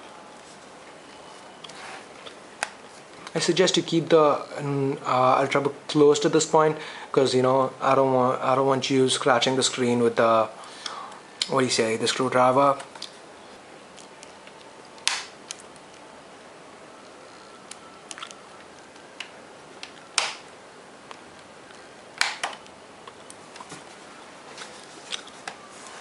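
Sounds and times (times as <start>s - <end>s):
plastic clips popping: 15.0s - 16.0s, 19.2s - 20.5s, 22.2s - 23.7s.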